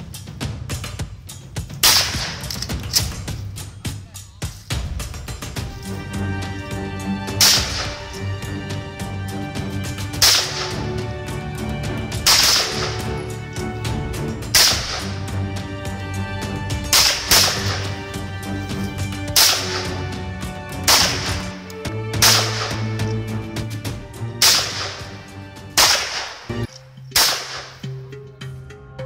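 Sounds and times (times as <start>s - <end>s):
gunshots with echo: 1.8s - 3.2s, 7.3s - 8.2s, 10.1s - 11.0s, 12.2s - 13.4s, 14.4s - 15.3s, 16.8s - 18.1s, 19.3s - 20.1s, 20.8s - 21.6s, 22.2s - 23.1s, 24.4s - 25.2s, 25.8s - 27.8s.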